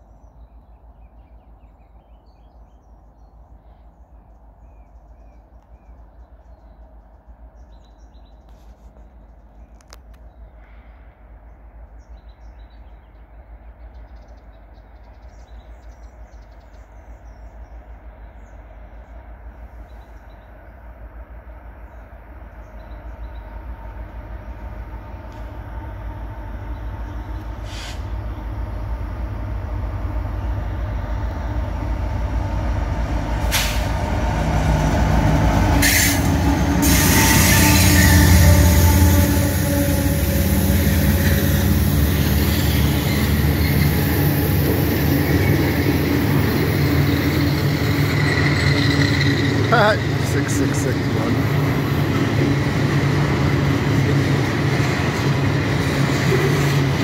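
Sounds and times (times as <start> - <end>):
birds chirping faintly: 0.0 - 33.4
diesel locomotive engine rumble: 0.0 - 57.0.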